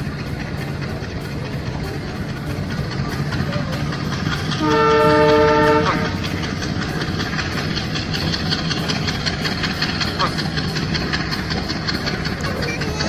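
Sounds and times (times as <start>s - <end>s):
fast wheel clicking: 0.0s - 13.0s
toy train horn blast: 4.6s - 6.2s
toy train motor whir: 6.1s - 13.0s.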